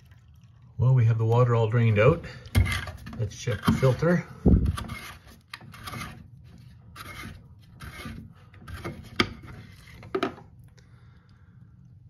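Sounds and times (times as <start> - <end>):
plastic cap scraping while unscrewed: 2.4 - 10.4.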